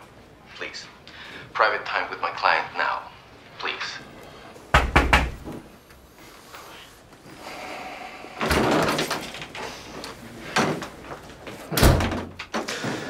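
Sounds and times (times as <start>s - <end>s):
door opening and shutting: 8.3s - 9.7s, 11.6s - 13.0s.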